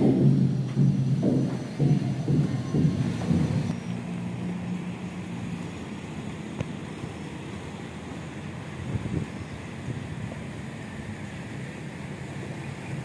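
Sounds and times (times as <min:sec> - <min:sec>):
low thumps: 0:00.0 - 0:03.8
distant traffic: 0:00.0 - 0:13.0
wind on microphone: 0:08.7 - 0:11.3.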